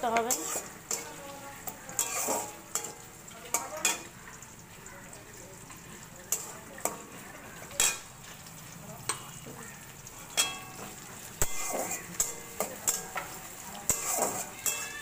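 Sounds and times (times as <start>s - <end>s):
onions sizzling in oil: 0.0s - 15.0s
metal spatula scraping pan: 0.1s - 4.1s, 7.8s - 8.1s, 10.3s - 15.0s.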